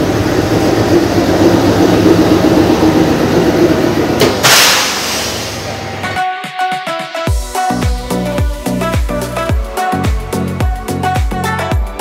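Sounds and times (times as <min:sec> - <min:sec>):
loud hiss: 0:04.4 - 0:05.7.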